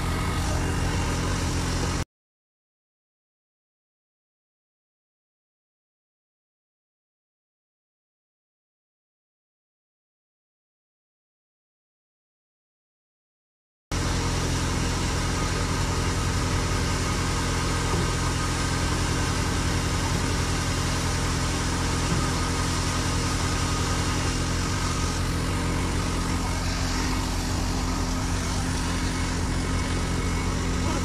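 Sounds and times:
grain thresher and tractor engine drone: 0.0s - 2.0s, 13.9s - 31.0s.

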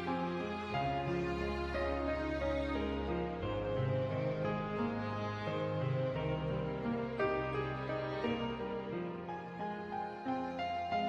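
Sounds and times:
background music sustained chords: 0.0s - 11.0s.

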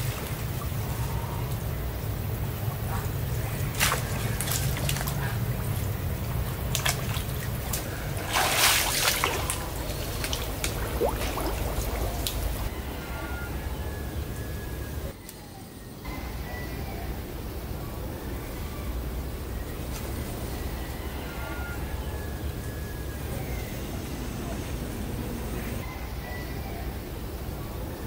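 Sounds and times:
steady low rumble: 0.0s - 15.2s
person wading through water: 2.3s - 12.7s
water dripping: 2.4s - 12.7s.

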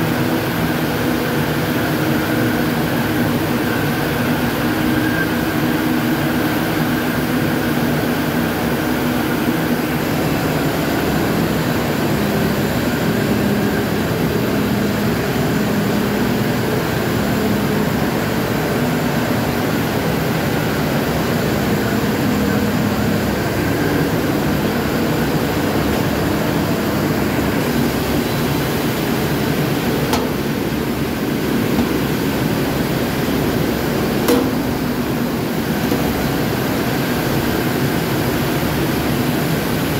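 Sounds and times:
loud machine drone: 0.0s - 39.9s
sharp click: 34.3s - 34.7s.

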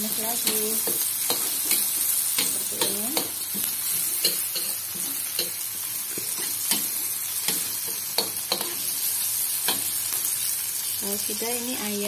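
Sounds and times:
aromatics sizzling in hot oil: 0.0s - 12.0s
metal spatula scraping wok: 0.4s - 10.0s.

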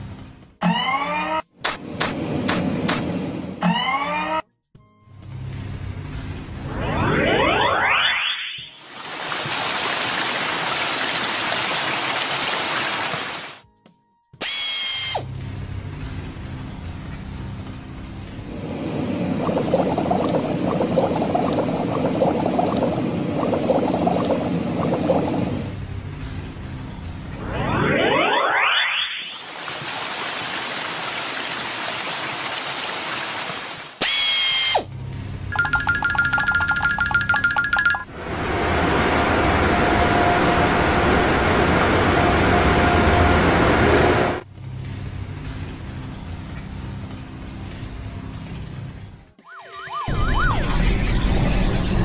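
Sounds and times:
whistle tone sliding down: 6.7s - 8.8s, 27.4s - 29.4s
high ringing tones sliding down: 35.5s - 43.5s.

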